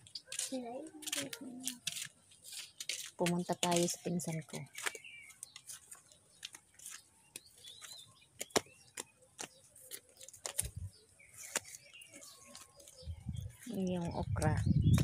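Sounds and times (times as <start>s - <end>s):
footsteps on dirt path: 0.0s - 15.0s
clicks and rustles: 4.7s - 10.8s.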